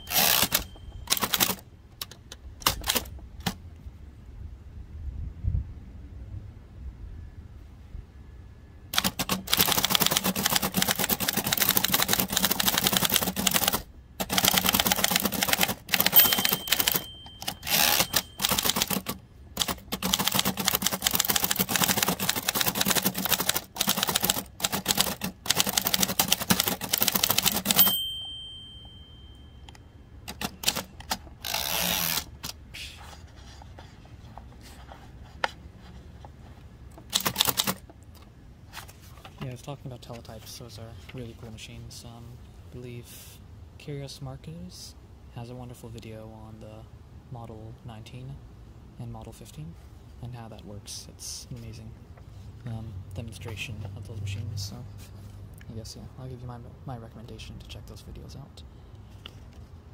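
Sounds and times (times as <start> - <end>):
typewriter bell ringing: 0.0 - 1.6, 14.4 - 19.1, 25.7 - 29.8
typewriter typebars clattering: 0.0 - 1.6, 9.0 - 28.0, 30.3 - 31.2, 37.1 - 37.8
typewriter clicks: 0.0 - 3.6, 8.9 - 28.3, 30.3 - 32.6, 37.0 - 37.9.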